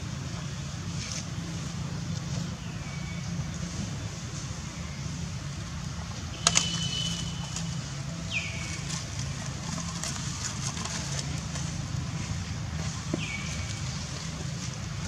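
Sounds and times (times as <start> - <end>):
dry leaves crackling underfoot: 6.4 - 15.0.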